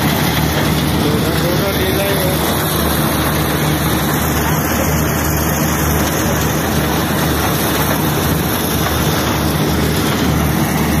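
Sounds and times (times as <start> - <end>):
corn-shelling machine running: 0.0 - 11.0
low engine hum: 0.0 - 11.0.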